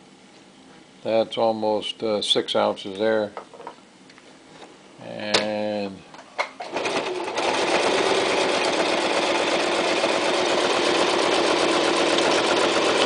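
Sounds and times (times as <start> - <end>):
sewing machine running: 6.6 - 13.0.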